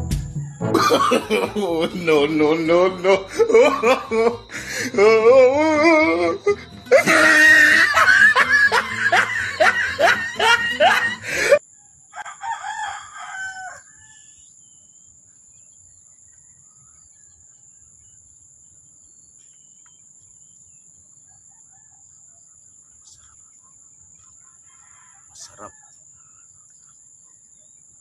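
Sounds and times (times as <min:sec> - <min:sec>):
music: 0:00.0 - 0:11.6
rooster crowing: 0:00.4 - 0:14.3, 0:21.4 - 0:22.1, 0:24.6 - 0:26.0
laughter: 0:00.7 - 0:11.6.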